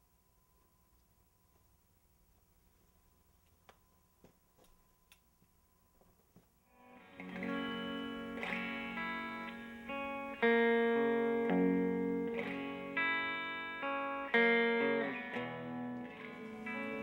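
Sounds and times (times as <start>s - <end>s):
distorted electric guitar chords: 6.8s - 17.0s.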